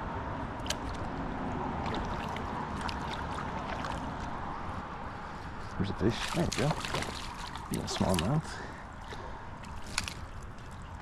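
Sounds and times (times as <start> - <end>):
water washing against kayak hull: 1.8 - 4.4, 6.2 - 10.9.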